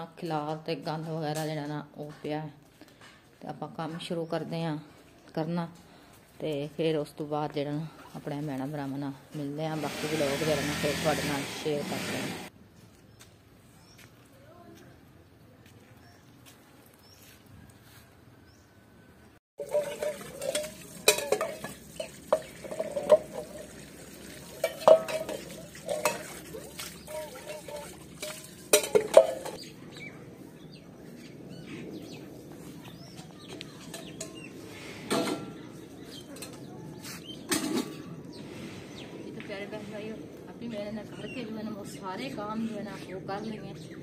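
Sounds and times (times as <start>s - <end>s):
tap water running and splashing: 19.6s - 29.5s
steel utensils clanking: 19.6s - 29.6s, 33.8s - 35.6s.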